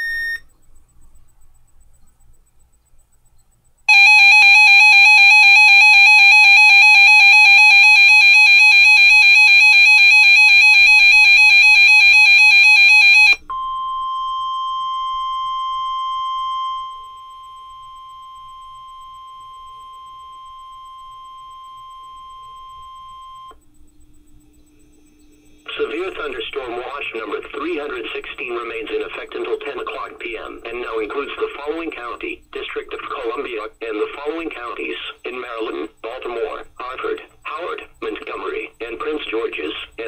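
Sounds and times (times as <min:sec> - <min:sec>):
steady single warning tone: 0:00.0 - 0:40.0
warbling alarm: 0:03.9 - 0:13.4.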